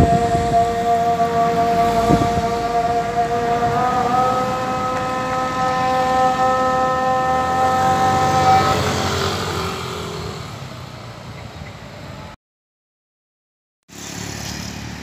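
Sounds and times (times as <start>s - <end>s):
siren-like steady tone: 0.0s - 10.6s
road traffic: 0.0s - 12.4s, 13.9s - 15.0s.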